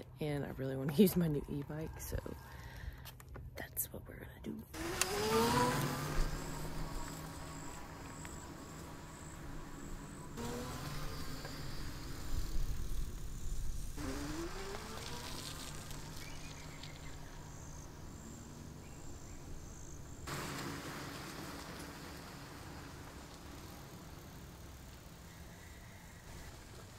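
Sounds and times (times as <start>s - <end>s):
rumble of riding: 0.0s - 26.9s
electric bike motor whining: 4.8s - 26.9s.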